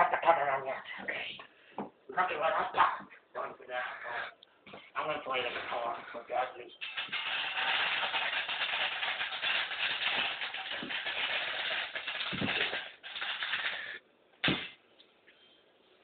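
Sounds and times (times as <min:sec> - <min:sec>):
rustling and crackling: 0:06.8 - 0:14.8
thump: 0:14.4 - 0:14.8.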